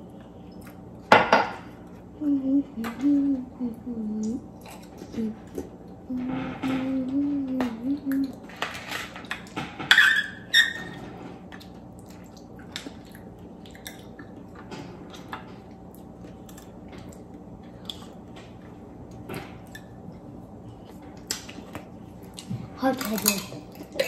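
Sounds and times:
steady low hum: 0.0 - 24.0
wet chewing: 11.5 - 24.0.

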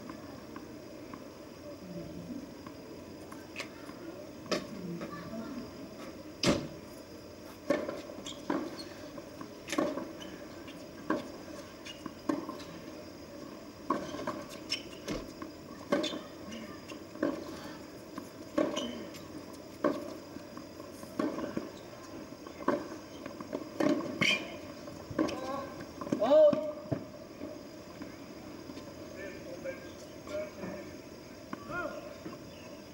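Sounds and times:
tennis ball bouncing on court: 18.5 - 21.8, 22.4 - 24.3.

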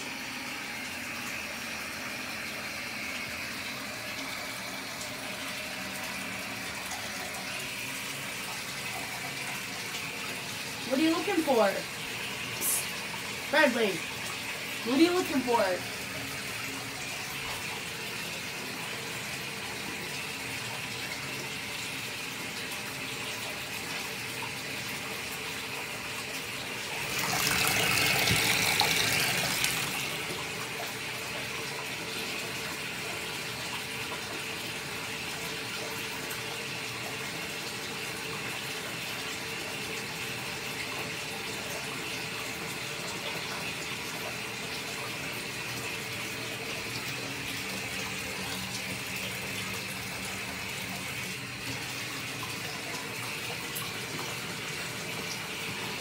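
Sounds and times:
running water hissing: 0.0 - 22.2, 26.2 - 33.6.

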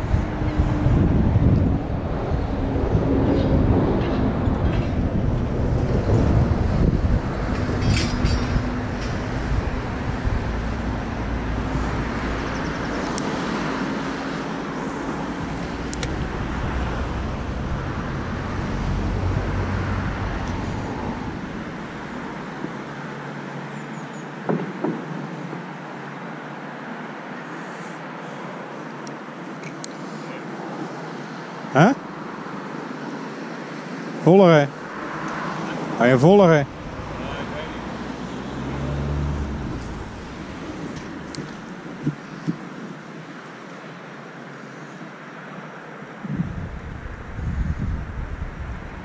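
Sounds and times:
wind buffeting microphone: 0.0 - 13.8, 14.6 - 22.7, 36.7 - 42.8, 46.2 - 49.0
distant engine hum: 0.0 - 49.0.

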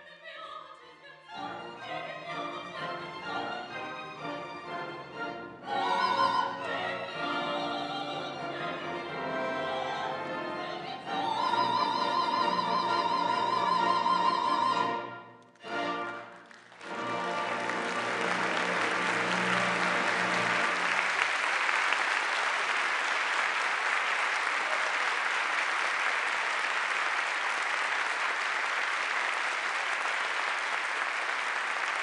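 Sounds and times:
audience applauding: 15.8 - 32.0.

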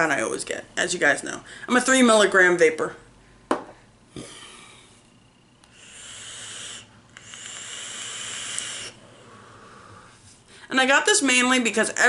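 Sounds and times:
e-cigarette draws hissing: 5.7 - 9.0.

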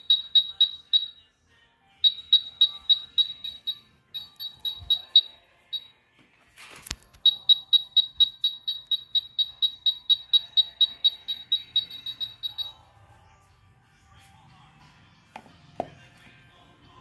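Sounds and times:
short high beeps: 2.0 - 5.9, 7.2 - 12.8.

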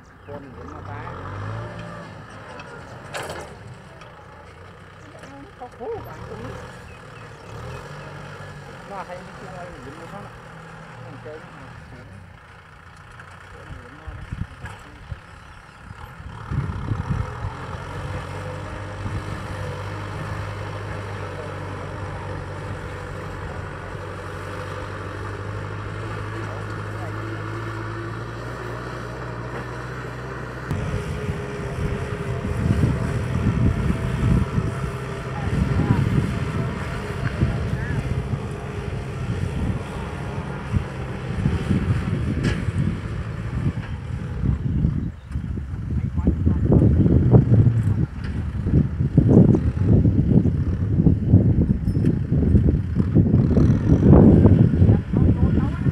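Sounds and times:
distant tractor engine hum: 0.0 - 55.9
wind buffeting microphone: 14.0 - 24.4, 30.7 - 55.9.

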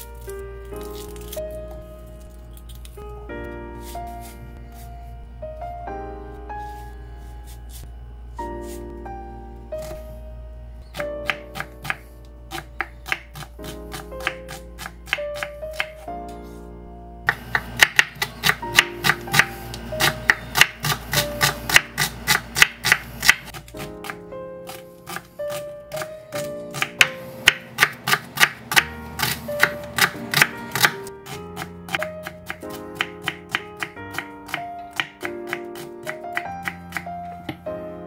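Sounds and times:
background music: 0.0 - 38.0
knife chopping on cutting board: 10.9 - 16.1, 17.3 - 37.6.

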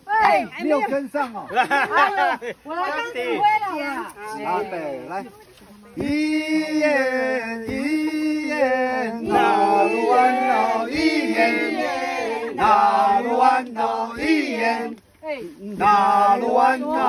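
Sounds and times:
group singing in chant style: 6.0 - 17.0.

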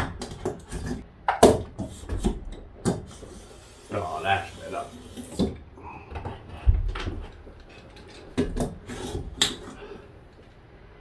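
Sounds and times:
scraper scraping adhesive: 8.6 - 9.8.

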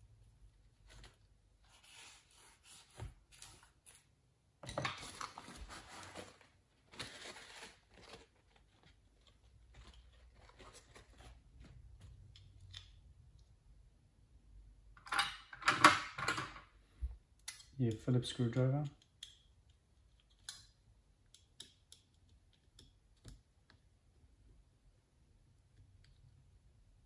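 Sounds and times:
paper towel rustling: 5.2 - 11.8.

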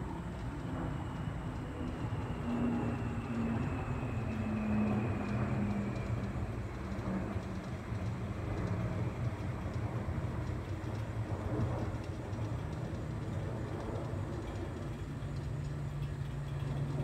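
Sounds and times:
distant jet engine rumble: 0.0 - 17.0.

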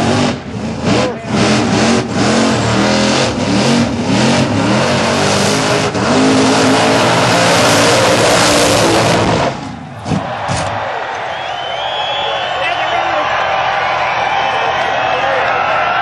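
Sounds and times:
engine revving hard: 0.0 - 10.3
spinning tyres roaring: 0.0 - 10.5.

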